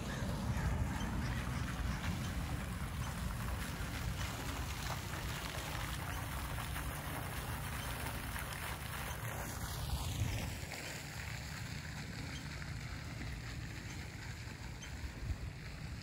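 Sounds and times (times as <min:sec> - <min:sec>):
fountain splashing into pool: 0:00.0 - 0:16.0
wind rumble on microphone: 0:11.3 - 0:16.0.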